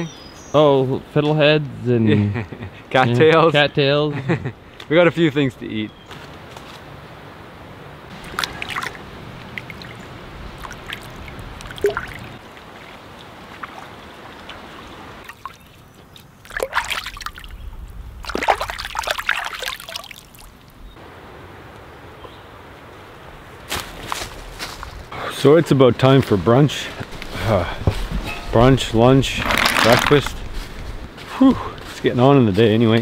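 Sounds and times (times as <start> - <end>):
water sloshing and splashing: 8.1 - 17.6, 18.2 - 20.8
stream trickling: 8.1 - 23.0.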